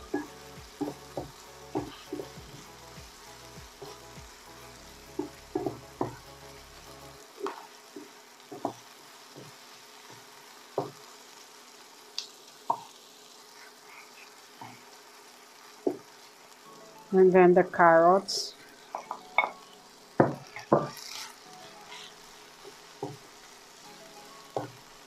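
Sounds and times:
food sizzling in frying pan: 0:00.0 - 0:25.0
spatula knocking against pan: 0:00.1 - 0:02.4, 0:05.2 - 0:06.2, 0:08.5 - 0:08.8.

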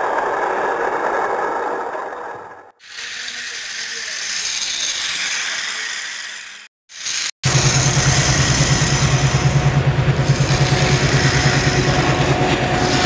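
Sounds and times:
toy train engine chugging: 0:00.0 - 0:13.0
hiss: 0:02.8 - 0:13.0.

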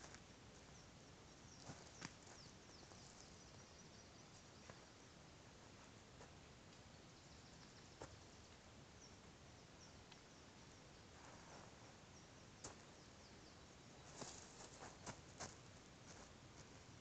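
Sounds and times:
faint outdoor hiss: 0:00.0 - 0:17.0
faint high chirps: 0:00.6 - 0:05.2.

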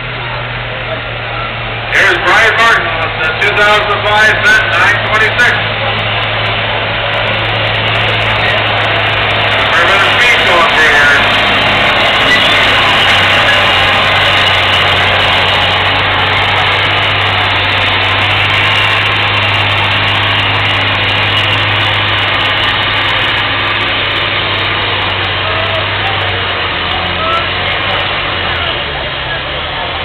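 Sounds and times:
dense wash of noise: 0:00.0 - 0:28.4
tractor diesel engine running: 0:00.0 - 0:30.0.

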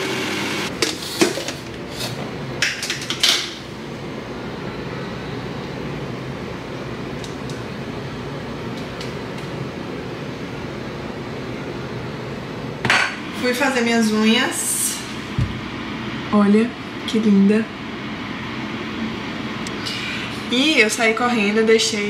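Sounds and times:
blender motor running: 0:00.0 - 0:00.7.

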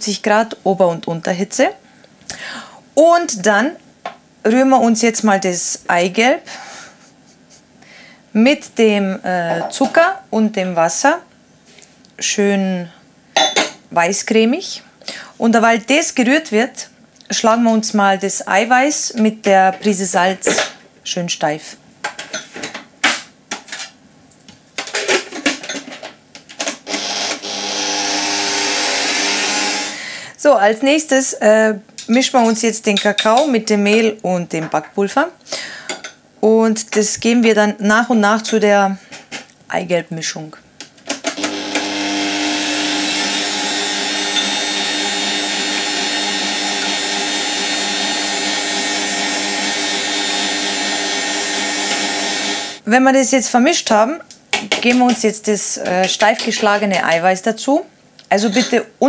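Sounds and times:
stand mixer motor whisking: 0:27.0 - 0:30.0, 0:41.4 - 0:52.8.

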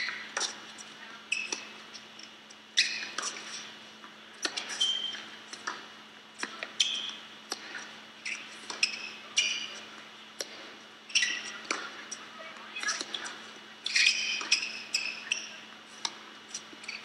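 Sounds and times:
shoes squeaking on court: 0:00.0 - 0:03.8, 0:04.4 - 0:10.0, 0:11.1 - 0:17.0
ball bouncing on court: 0:04.4 - 0:09.8, 0:11.2 - 0:12.2, 0:12.8 - 0:17.0.

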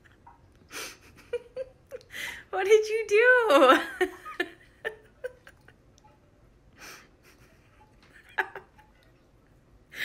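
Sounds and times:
person breathing: 0:02.1 - 0:02.5, 0:06.8 - 0:07.3.

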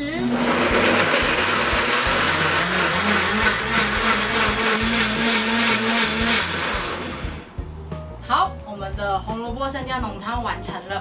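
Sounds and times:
blender running: 0:00.0 - 0:07.6.

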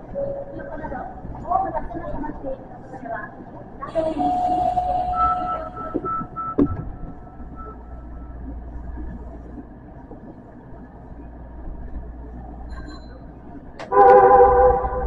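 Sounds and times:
subway train humming: 0:00.0 - 0:15.0
thin tone: 0:03.9 - 0:08.4.

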